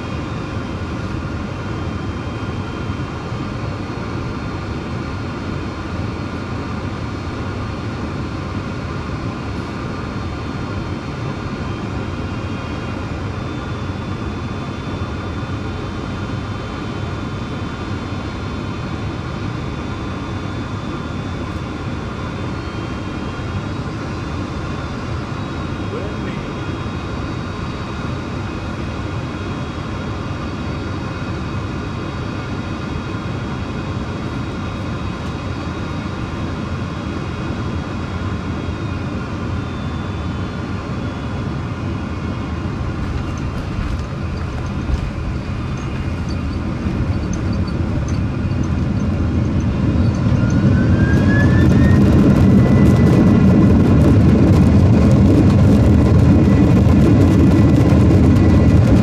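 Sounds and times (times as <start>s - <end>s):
engines spooling up whine: 0.0s - 59.0s
jet engine drone: 0.0s - 59.0s
engine whining tones: 42.4s - 59.0s.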